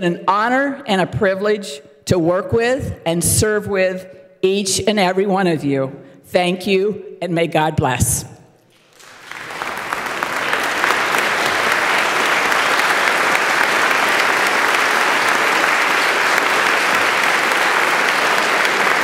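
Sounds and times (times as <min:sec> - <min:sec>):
crowd applauding: 0:08.7 - 0:19.0.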